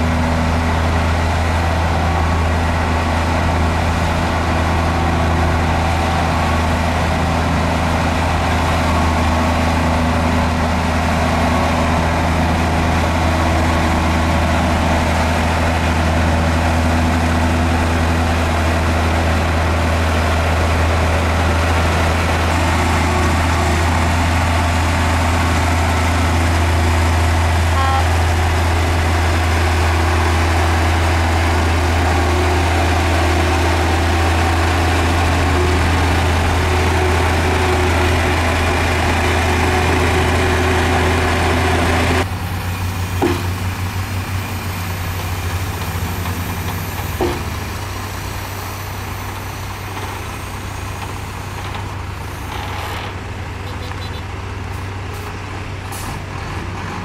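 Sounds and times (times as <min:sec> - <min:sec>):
heavy machinery diesel engine running: 0:00.0 - 0:57.0.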